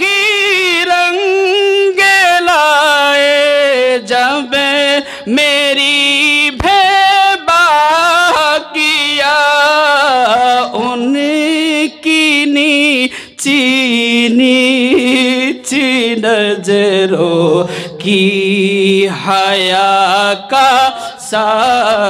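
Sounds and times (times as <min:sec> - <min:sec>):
man singing: 0:00.0 - 0:22.0.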